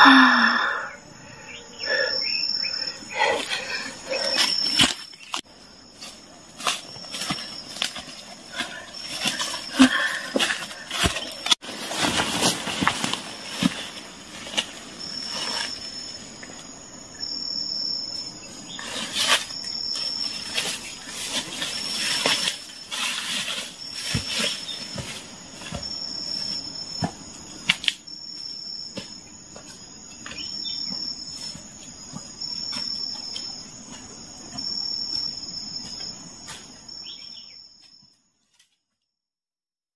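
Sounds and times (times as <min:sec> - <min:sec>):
insect chirping: 0:00.0 - 0:39.1
footsteps through dry undergrowth: 0:04.4 - 0:15.1.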